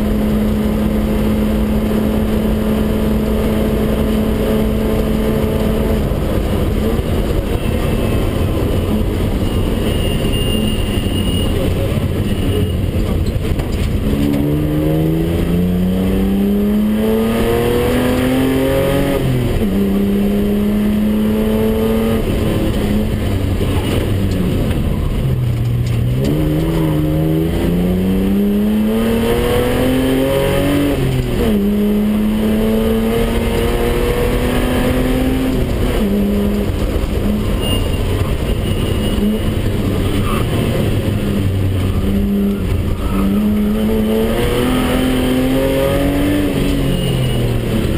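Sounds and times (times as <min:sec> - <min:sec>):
car engine accelerating through gears: 0:00.0 - 0:09.4, 0:13.0 - 0:47.9.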